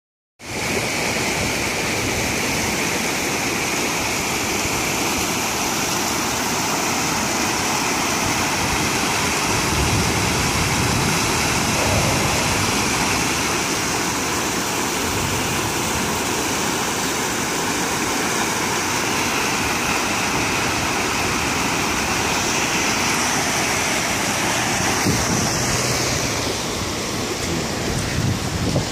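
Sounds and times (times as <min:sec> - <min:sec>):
floodwater rushing: 0:00.4 - 0:28.9.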